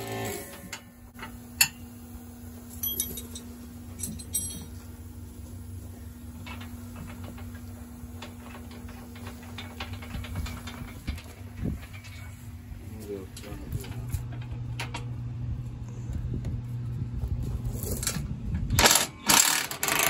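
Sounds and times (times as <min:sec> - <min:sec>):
steady low hum: 0:00.0 - 0:20.0
hand tools clinking on metal: 0:02.7 - 0:04.9.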